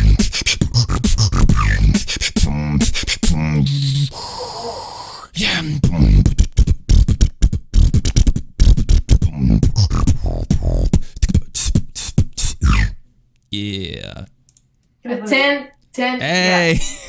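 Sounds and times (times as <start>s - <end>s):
person beatboxing: 0.0s - 13.0s.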